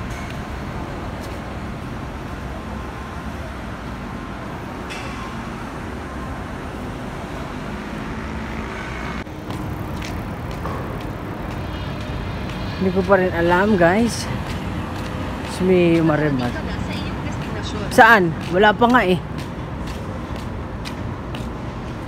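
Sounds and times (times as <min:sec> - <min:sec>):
city street traffic rumble: 0:00.0 - 0:22.0.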